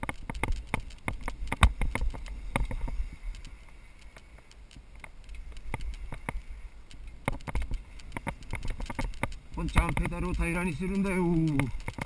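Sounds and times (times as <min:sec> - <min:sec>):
bike knocks and rattles: 0:00.0 - 0:03.0, 0:07.2 - 0:12.0
low wind rumble: 0:00.0 - 0:12.0.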